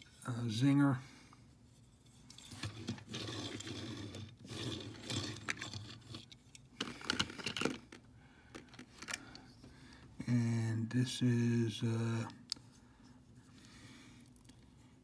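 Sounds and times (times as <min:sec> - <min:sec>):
hands handling toy cars: 0:01.7 - 0:10.1.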